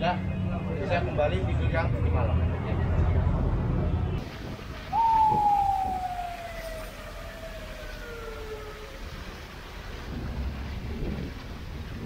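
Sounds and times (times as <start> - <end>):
vehicle siren wailing: 4.9 - 9.4
car driving on wet road: 6.5 - 12.0.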